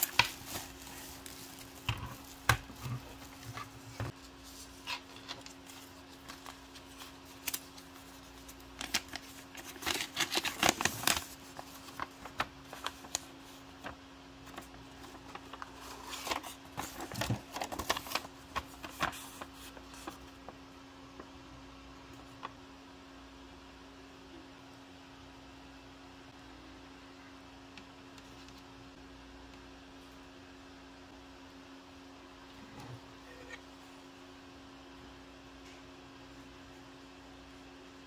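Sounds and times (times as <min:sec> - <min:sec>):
paper rustling and crinkling: 0:00.0 - 0:20.6.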